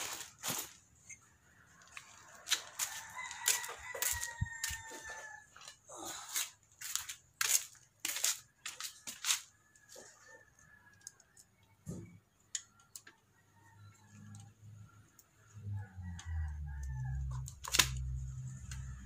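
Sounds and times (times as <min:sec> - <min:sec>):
sharp clicks and rustles: 0:00.0 - 0:13.3, 0:14.1 - 0:19.0
screwdriver ticking and scraping: 0:01.8 - 0:09.8.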